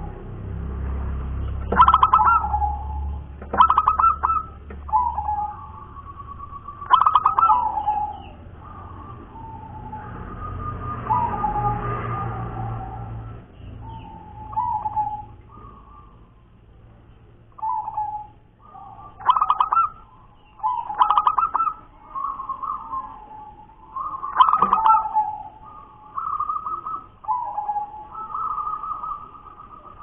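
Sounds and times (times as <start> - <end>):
dove cooing with stuttering trills: 1.4 - 16.7, 17.5 - 30.0.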